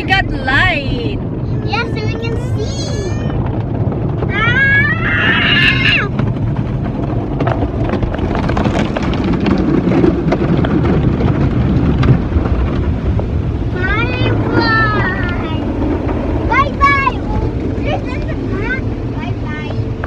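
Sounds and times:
car wash machinery rumble: 0.0 - 20.0
water spray drumming on roof: 1.0 - 20.0
child squealing: 4.4 - 6.1.

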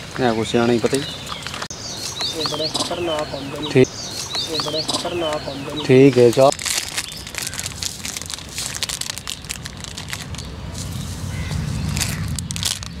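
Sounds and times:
leaves rustling and crackling: 0.0 - 13.0
low rumble: 9.6 - 13.0.

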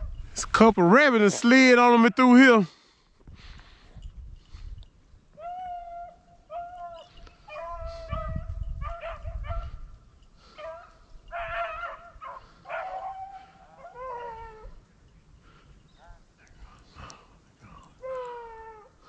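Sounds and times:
hounds baying: 5.4 - 19.0.

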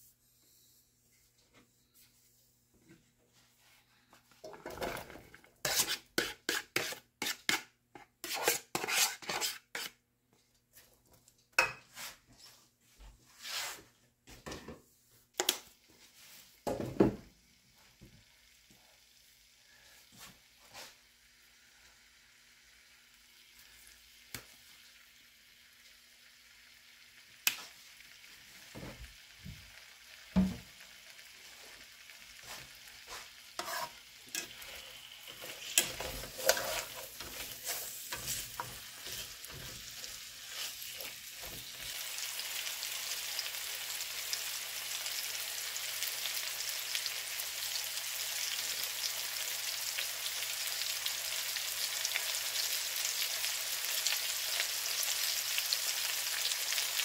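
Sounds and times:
vegetables clattering into skillet: 4.4 - 6.9, 33.1 - 41.8
spatula scraping pan: 4.4 - 10.0, 32.4 - 42.3
frying sizzle: 15.4 - 57.0.

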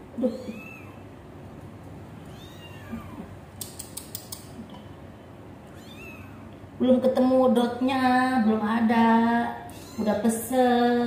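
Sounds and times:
kittens mewing: 0.2 - 1.1, 2.3 - 4.0, 5.7 - 6.6, 9.7 - 10.2
light clicks: 3.6 - 4.8.

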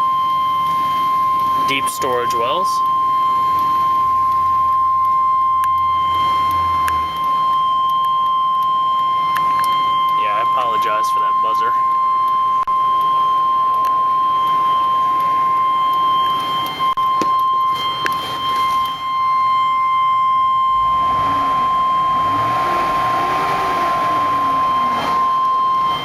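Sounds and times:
dashboard warning buzzer: 15.0 - 26.0
rushing noise: 20.7 - 26.0.

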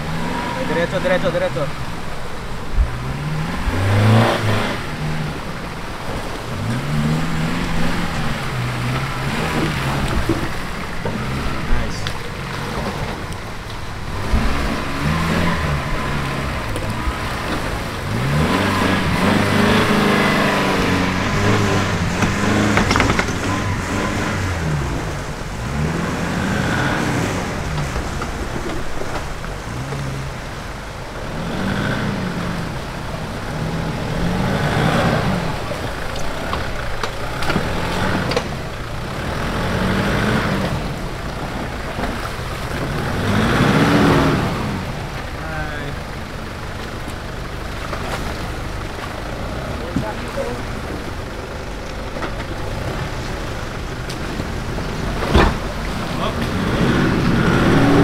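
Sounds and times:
off-road engine revving: 0.0 - 58.0.

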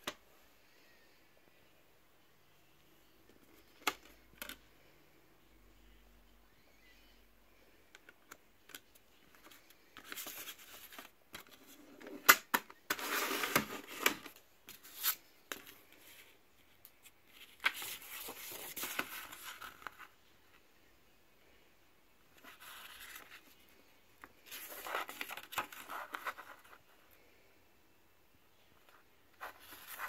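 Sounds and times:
paper booklet rustling: 12.9 - 20.1, 22.3 - 27.0, 28.8 - 30.0.

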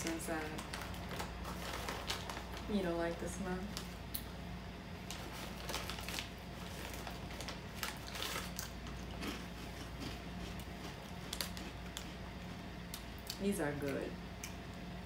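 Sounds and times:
people chewing crunchy snacks: 5.1 - 13.4.

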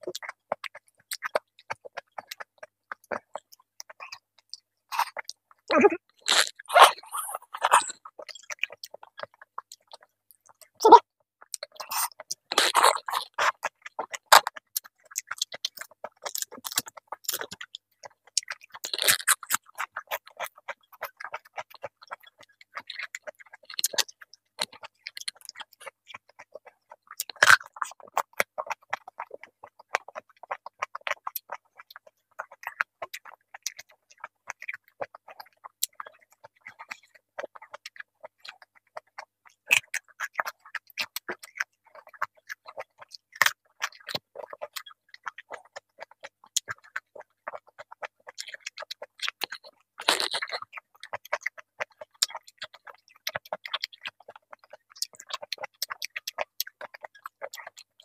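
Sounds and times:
person chewing crunchy vegetables: 0.0 - 58.0
mouth clicks: 3.1 - 10.0.

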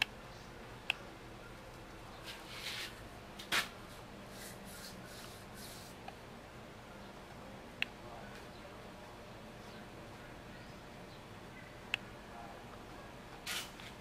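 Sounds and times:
paintbrush swishes: 4.3 - 6.0.

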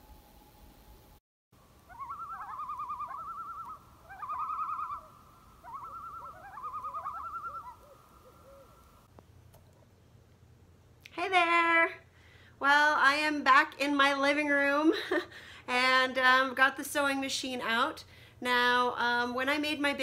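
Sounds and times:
faint steady background: 0.0 - 20.0
bird trilling call: 1.9 - 9.1.

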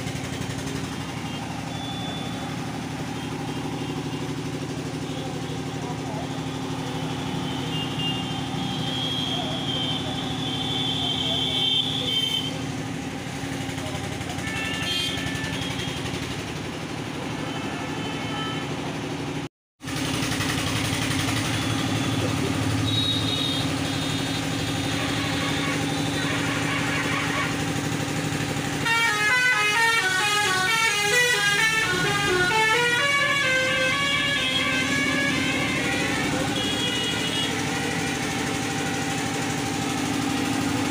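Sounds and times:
street traffic: 0.0 - 40.9
vehicle horns honking: 0.1 - 12.8, 13.5 - 19.3, 21.3 - 40.9
warbling horn: 21.5 - 27.9, 28.6 - 39.5.

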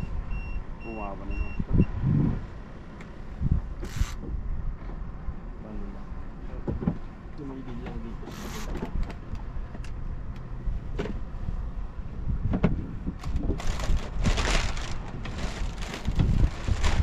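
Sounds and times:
wind buffeting microphone: 1.5 - 2.6, 3.3 - 5.4, 10.7 - 17.0
rustling bursts: 13.2 - 17.0.

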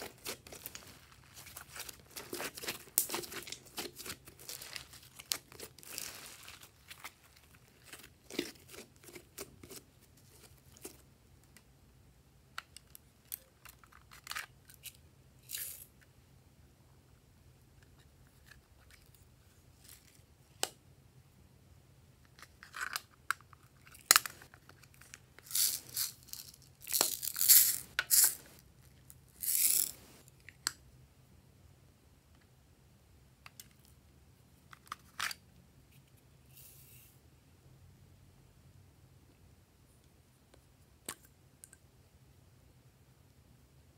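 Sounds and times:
beads rattling: 25.4 - 28.6, 29.3 - 30.1.

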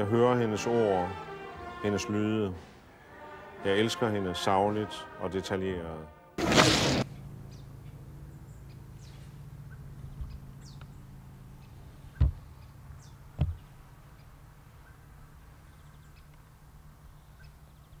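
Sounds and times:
short dull thumps: 12.1 - 12.5, 13.3 - 13.7
faint bird chirps: 17.0 - 18.0.

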